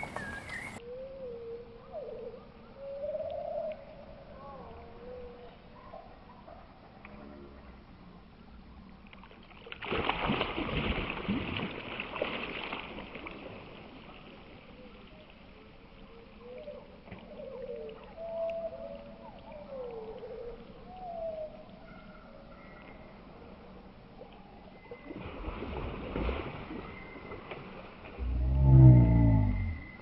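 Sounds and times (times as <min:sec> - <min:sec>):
water churning and sloshing: 0:00.0 - 0:00.8, 0:09.1 - 0:21.4, 0:24.7 - 0:30.0
fish splash: 0:09.2 - 0:14.5, 0:25.0 - 0:28.2.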